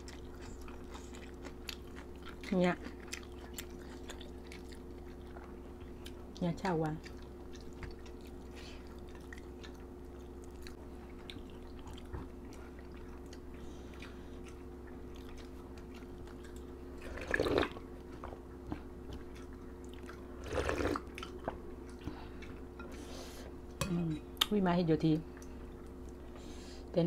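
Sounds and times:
soft chewing: 0.0 - 24.5, 25.2 - 26.6
slurping broth: 17.0 - 17.8, 20.4 - 21.1.

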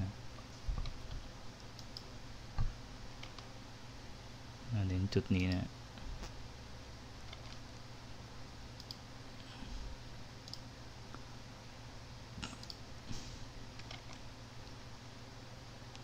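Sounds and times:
faint low hum: 0.0 - 16.0
computer mouse clicks: 0.8 - 2.1, 7.2 - 7.6, 8.8 - 9.0, 10.4 - 10.7, 12.6 - 12.8, 13.8 - 14.8.

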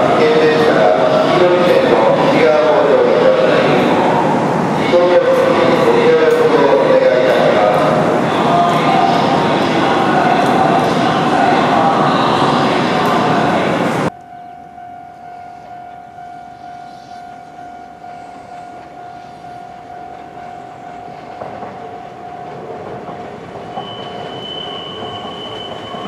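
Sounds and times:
high-pitched train tone: 0.0 - 26.0
train rumbling past: 0.0 - 26.0.

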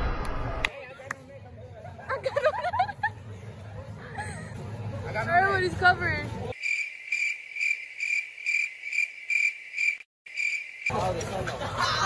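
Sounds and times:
crickets chirping: 6.5 - 11.0.

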